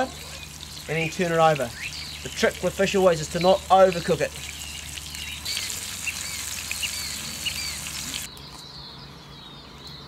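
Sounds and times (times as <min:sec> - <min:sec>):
small birds chirping: 0:00.0 - 0:10.0
fish sizzling in a skillet: 0:04.4 - 0:08.3.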